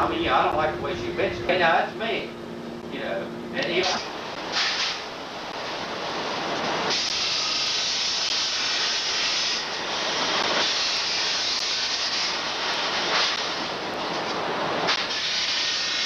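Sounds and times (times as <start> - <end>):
hissing rush of machinery: 3.8 - 16.0.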